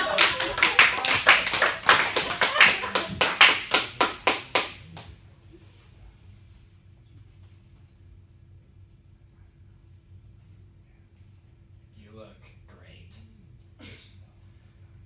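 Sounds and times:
small audience applauding: 0.0 - 5.2
faint steady hum: 0.0 - 15.0.

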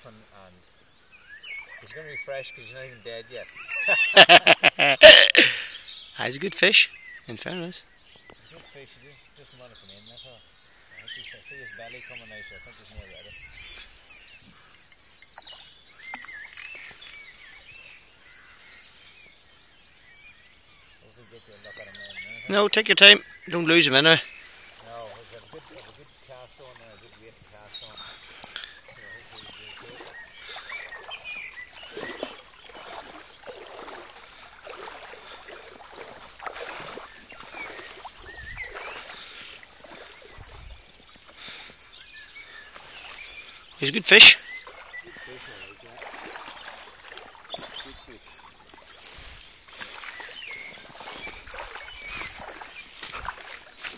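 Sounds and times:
bird chirps: 0.0 - 53.9
songbirds singing: 0.0 - 53.9
water splashing and sloshing: 11.4 - 22.4, 23.5 - 53.9.

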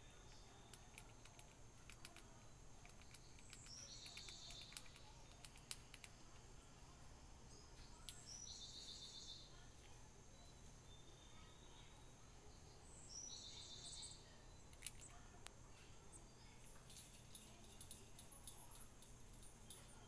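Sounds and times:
squirrel chewing seeds: 0.0 - 8.7, 13.8 - 20.0.

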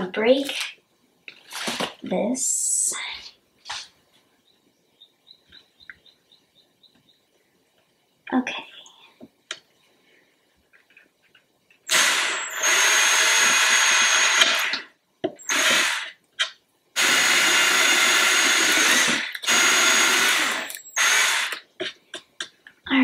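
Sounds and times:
cordless drill boring into wood: 11.9 - 16.2, 17.0 - 21.6.

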